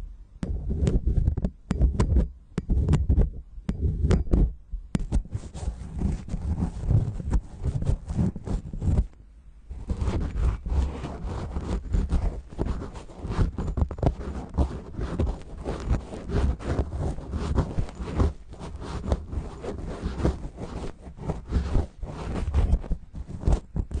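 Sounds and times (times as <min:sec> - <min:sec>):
swab scratching microphone grille: 0:00.5 - 0:09.1, 0:09.7 - 0:24.0.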